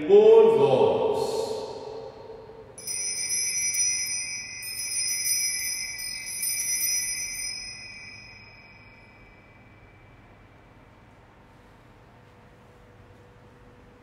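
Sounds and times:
high bells ringing: 2.8 - 10.7.

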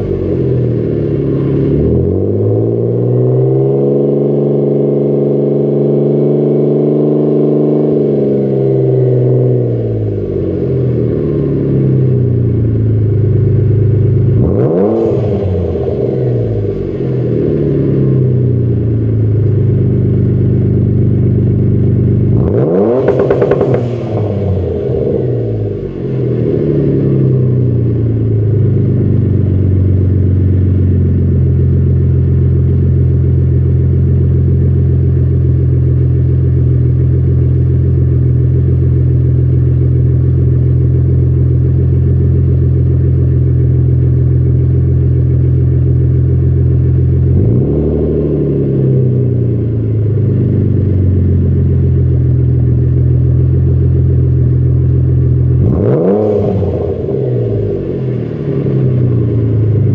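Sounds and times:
car engine idling: 0.0 - 59.9
engine throttle blip: 22.4 - 26.4.

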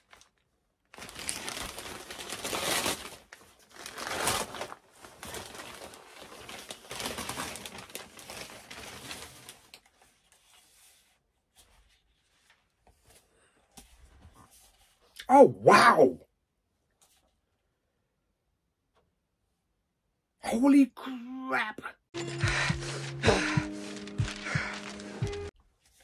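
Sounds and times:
wrapping paper tearing and rustling: 0.0 - 11.2, 22.2 - 26.0.

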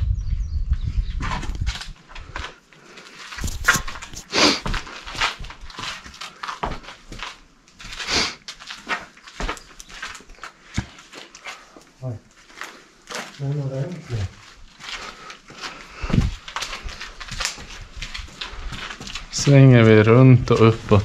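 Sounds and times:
low rumble: 0.0 - 2.4
footsteps on gravel: 1.2 - 21.0.

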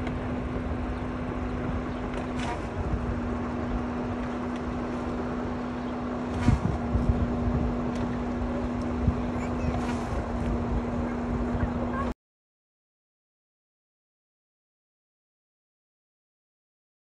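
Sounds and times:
river water rippling: 0.0 - 12.1
wind buffeting microphone: 0.0 - 12.1
steady low hum: 0.0 - 12.2.

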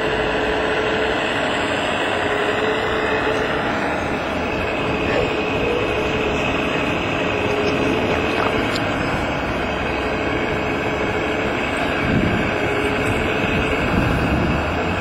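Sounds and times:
hydraulic whine: 0.0 - 15.0
rushing noise: 0.0 - 15.0.

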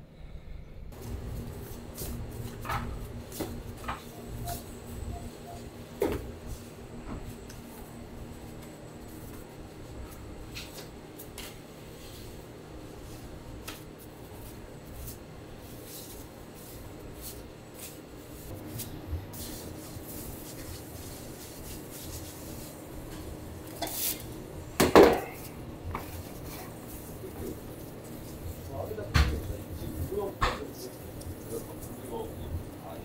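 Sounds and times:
kitchen room noise: 0.0 - 33.0.

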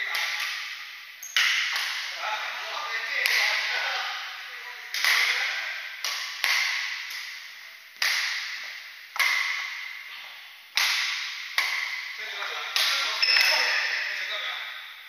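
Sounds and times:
rackets hitting shuttlecock: 0.0 - 2.2, 3.1 - 3.6, 4.9 - 10.1, 10.7 - 14.2.

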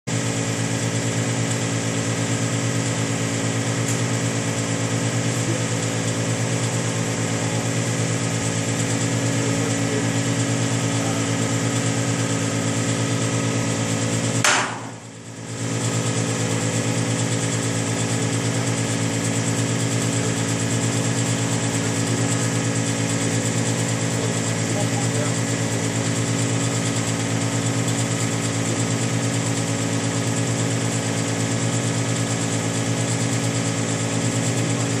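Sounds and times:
motor running with rapid pulse: 0.1 - 35.0
sharp click: 14.4 - 15.1.

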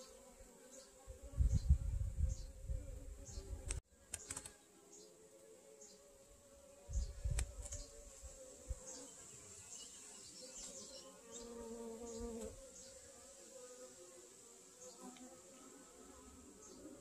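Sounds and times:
honeybees buzzing: 0.0 - 17.0.

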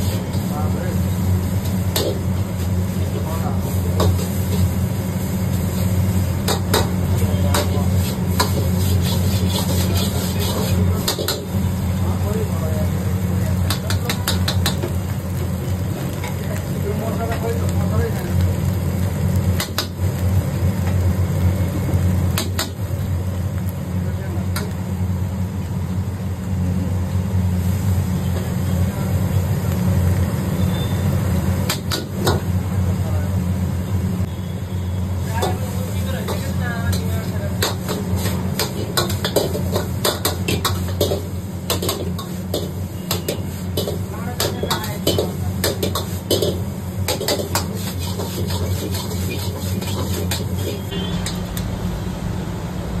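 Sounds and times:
gas burner rumbling: 0.0 - 53.0
metal ladle clattering in a wok: 37.6 - 51.4.

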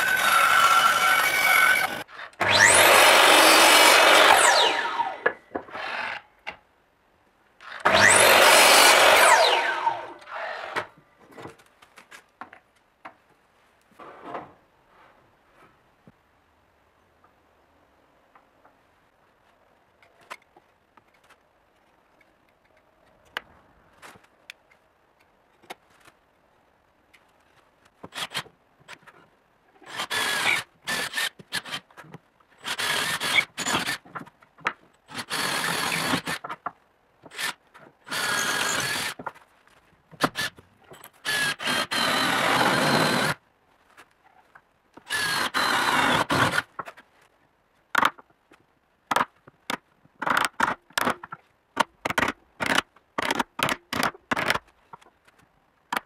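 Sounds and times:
electric drill boring into wood: 0.0 - 6.2, 7.6 - 10.8, 29.9 - 31.8, 32.6 - 34.0, 35.1 - 36.4, 38.1 - 39.2, 41.2 - 43.4, 45.1 - 46.6.

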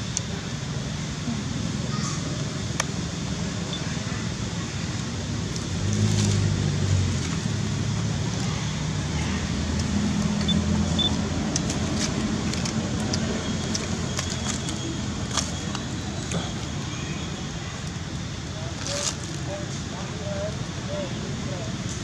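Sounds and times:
outdoor background noise: 0.0 - 22.0
vehicle engine hum: 0.0 - 22.0.

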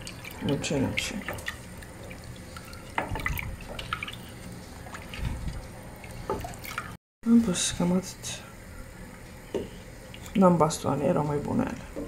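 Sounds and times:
spoon stirring water in a pot: 0.0 - 7.0.

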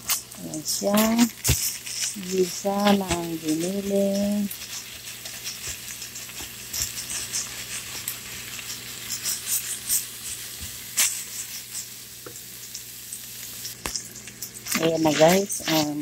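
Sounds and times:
meat sizzling in frying pan: 0.0 - 16.0
wooden spatula stirring: 0.8 - 11.8.

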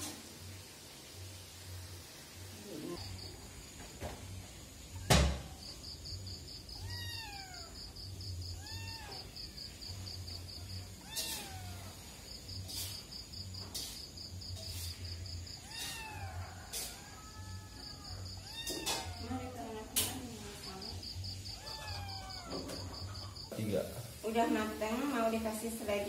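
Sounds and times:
insect high-pitched trill: 2.5 - 23.6
cat meowing: 6.7 - 12.3, 15.5 - 20.7, 21.3 - 23.4.

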